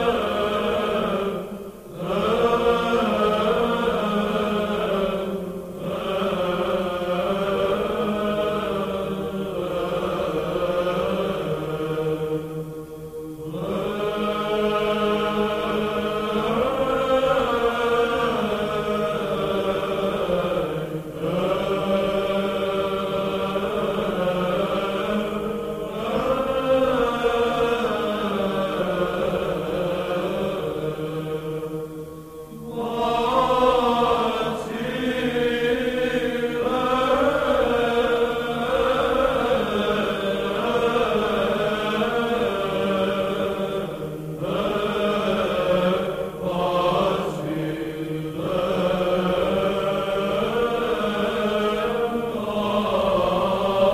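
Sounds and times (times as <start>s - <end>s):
voices chanting: 0.0s - 53.9s.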